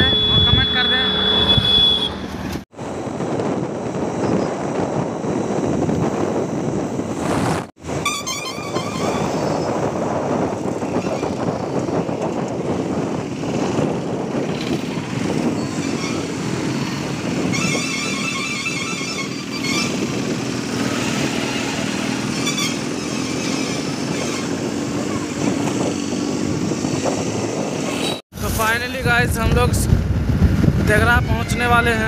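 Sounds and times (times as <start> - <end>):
vehicle horn toot: 0.0 - 2.3, 8.0 - 9.6
wind rush and road noise: 0.0 - 32.0.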